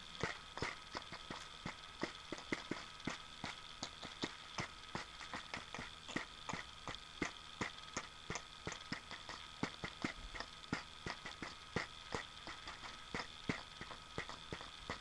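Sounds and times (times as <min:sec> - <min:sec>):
faint steady hum: 0:00.0 - 0:15.0
beatbox mouth clicks: 0:03.8 - 0:04.4, 0:05.0 - 0:15.0.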